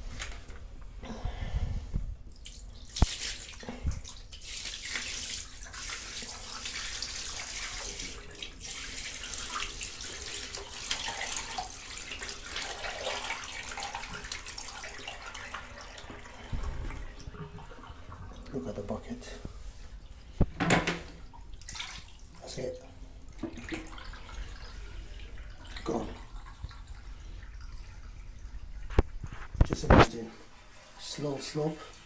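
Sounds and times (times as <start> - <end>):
water splashing onto shower tray: 2.3 - 19.0, 20.4 - 22.6.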